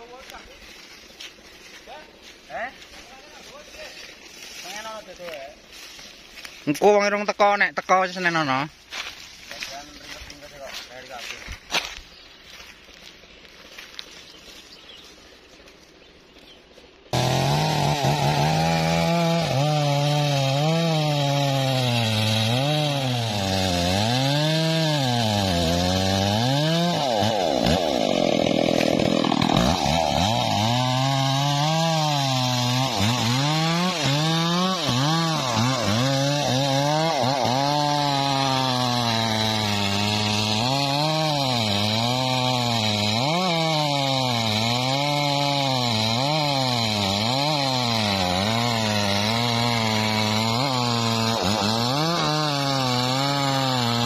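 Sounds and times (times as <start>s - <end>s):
chainsaw cutting wood: 17.0s - 54.0s.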